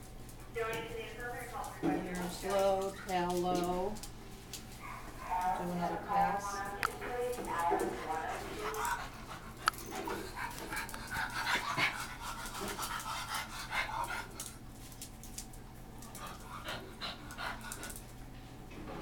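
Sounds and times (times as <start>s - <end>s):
dogs panting: 0.0s - 18.4s
claws clicking on tile floor: 14.1s - 18.2s.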